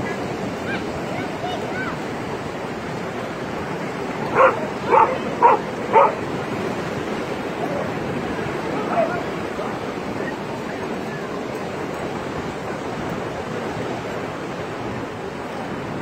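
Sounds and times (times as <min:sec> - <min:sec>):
surf washing: 0:00.0 - 0:16.0
dog barking: 0:04.3 - 0:06.2.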